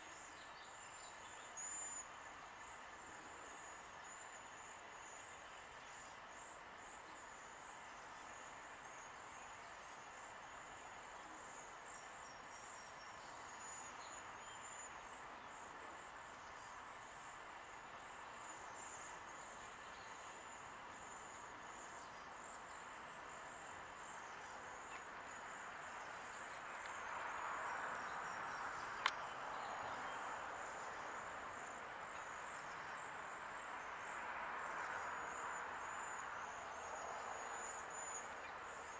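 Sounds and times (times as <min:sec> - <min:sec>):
sharp click: 0:29.0 - 0:29.2.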